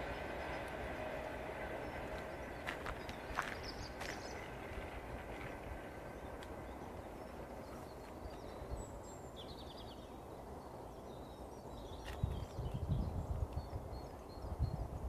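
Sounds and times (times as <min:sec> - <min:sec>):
low bumps: 0:00.0 - 0:09.1.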